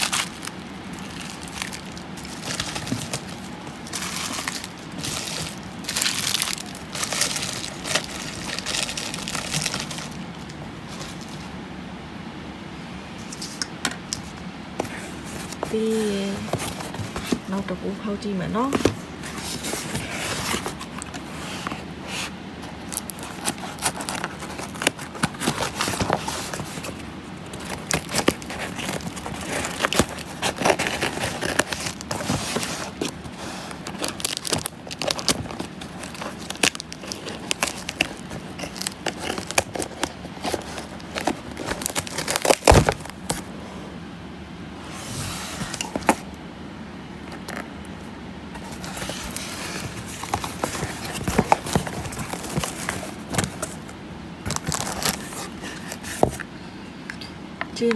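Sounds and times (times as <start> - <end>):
cardboard cracking: 0.0 - 11.3, 18.7 - 43.5, 48.6 - 56.4
cardboard crinkling and tearing: 0.0 - 11.4, 14.8 - 17.6, 18.6 - 43.5, 48.6 - 56.4.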